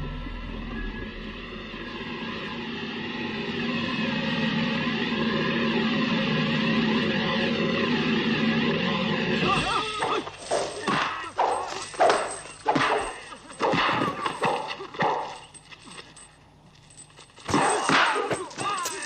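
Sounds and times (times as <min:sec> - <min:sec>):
men yelling fighting cries: 0:09.4 - 0:11.9, 0:17.5 - 0:19.0.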